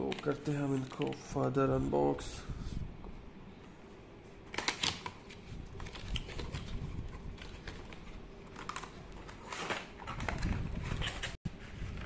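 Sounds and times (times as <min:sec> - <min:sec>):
packaging rustling: 0:04.5 - 0:12.0.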